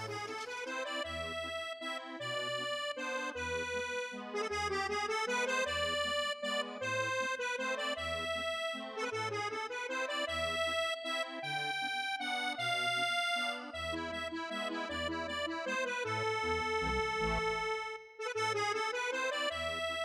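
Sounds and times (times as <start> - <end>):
background music with bass line: 16.0 - 17.8.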